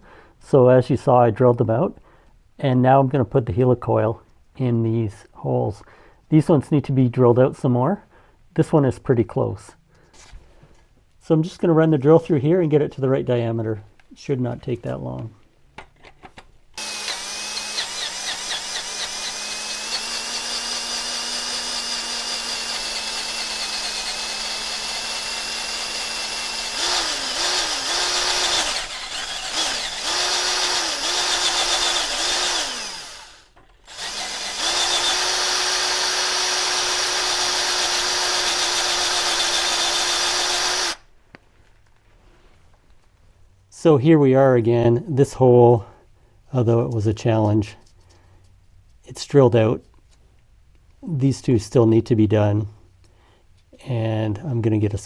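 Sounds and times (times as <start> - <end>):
cordless drill drilling metal: 16.8 - 41.1.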